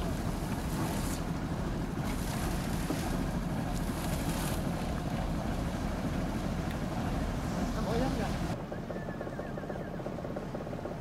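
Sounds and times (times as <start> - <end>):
water splashes: 0.0 - 8.6
water sloshing around boat: 0.0 - 11.0.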